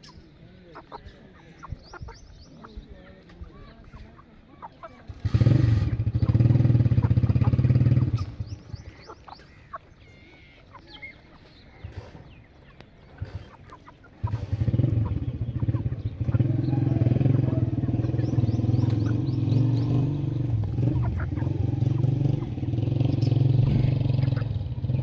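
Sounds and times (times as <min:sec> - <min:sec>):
chickens clucking: 0:00.0 - 0:25.0
engine running loudly: 0:14.2 - 0:25.0.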